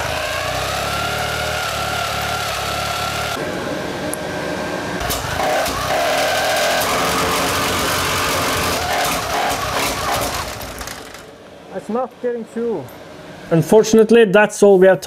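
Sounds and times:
engine cranking whine: 0.0 - 3.4, 5.0 - 11.4.

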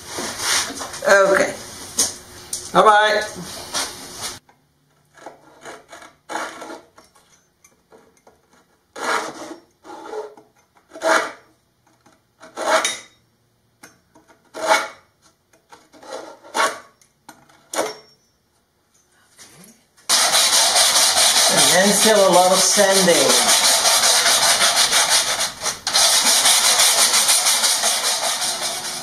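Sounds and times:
hand file scraping wood: 0.0 - 1.1, 5.1 - 7.0, 8.5 - 11.5, 12.4 - 12.9, 14.3 - 15.0, 15.7 - 16.9, 20.1 - 29.0.

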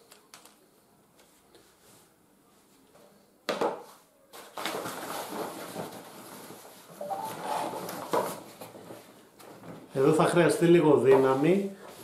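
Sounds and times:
scraping and rustling of cot frame: 4.6 - 10.2.

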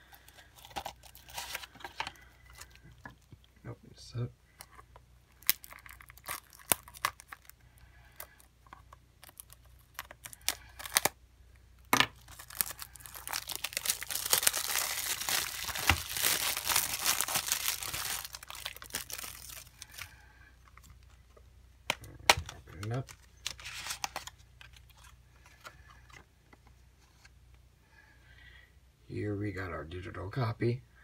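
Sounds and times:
plastic wrap crinkling and tearing: 0.0 - 3.3, 5.3 - 7.6, 9.2 - 11.2, 12.1 - 21.2, 21.9 - 25.2.

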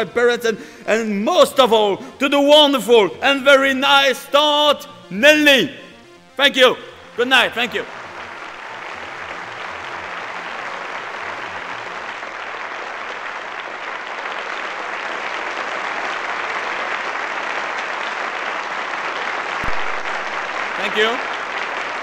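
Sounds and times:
low music beat: 1.0 - 9.4, 19.6 - 21.0
audience applauding: 7.1 - 22.0.

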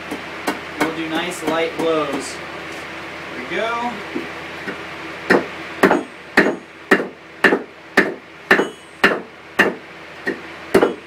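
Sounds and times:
hammer striking steel on anvil: 5.3 - 11.0.

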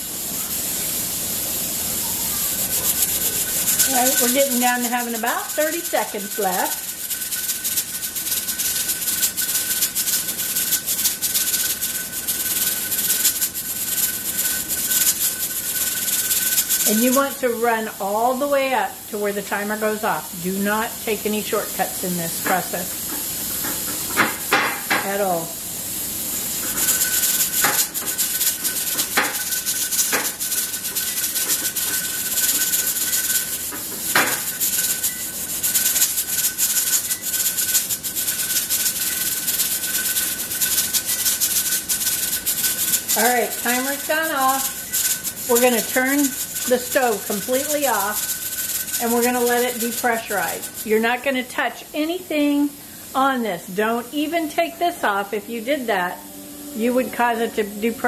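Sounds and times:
steam hissing: 0.0 - 58.0
thin high tone: 1.9 - 7.7, 34.4 - 37.5, 55.1 - 58.0
canner regulator rattling: 2.9 - 17.6, 26.6 - 51.2
faint high tone: 56.1 - 58.0.

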